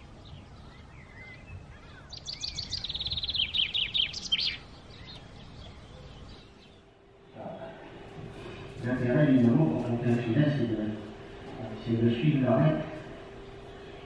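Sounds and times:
songbird rapid trill: 0.0s - 6.9s
bird chirps and gliding calls: 0.0s - 8.7s.

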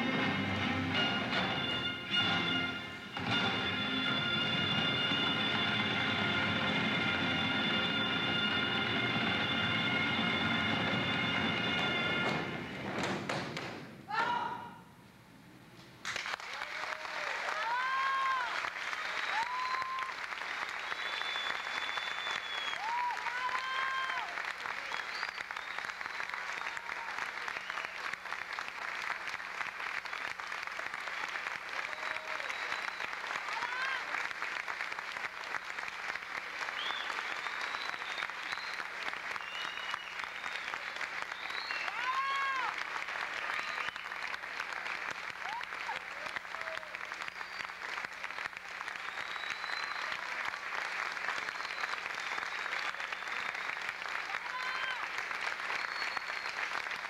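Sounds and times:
audience applauding: 16.0s - 57.0s.

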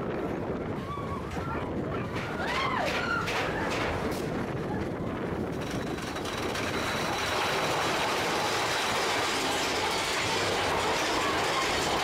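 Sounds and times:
roller coaster wheels rumbling on rail: 0.0s - 12.0s.

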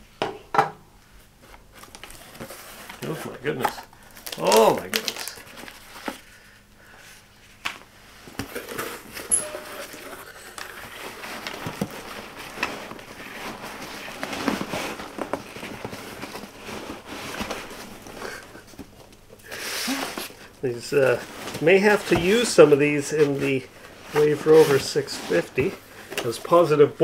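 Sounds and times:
packing peanuts rustling: 1.7s - 6.0s.

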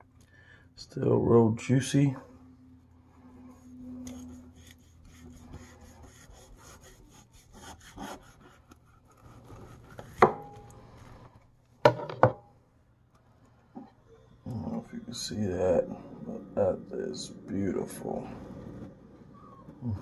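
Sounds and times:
knife scraping through crust: 4.0s - 11.1s.

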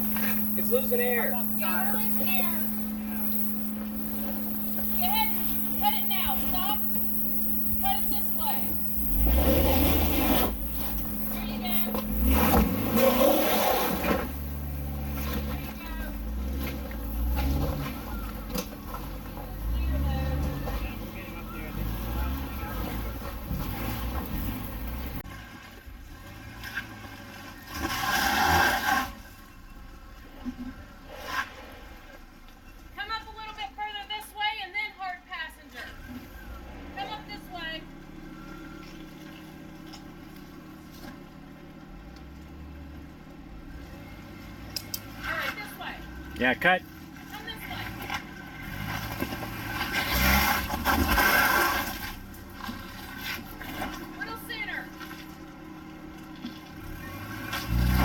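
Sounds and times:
rough scraping: 0.0s - 25.2s, 31.0s - 32.2s
tyres working over rock: 0.0s - 25.2s
off-road vehicle engine: 0.0s - 58.0s.

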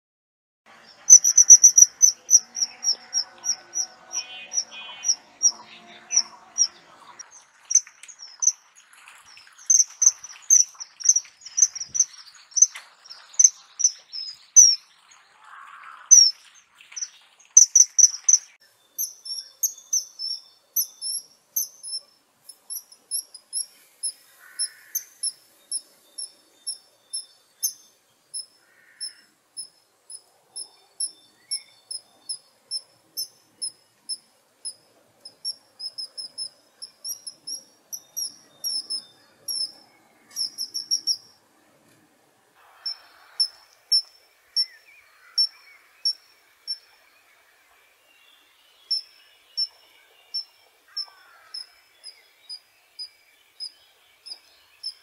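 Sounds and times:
kingfisher shrill whistled calls: 1.1s - 6.8s.

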